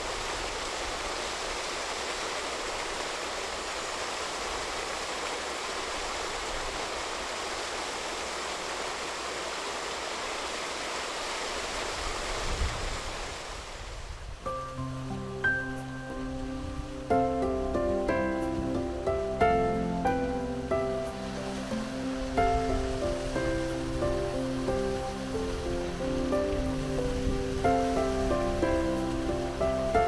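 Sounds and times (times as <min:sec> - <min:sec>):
flowing water rushing: 0:00.0 - 0:30.0.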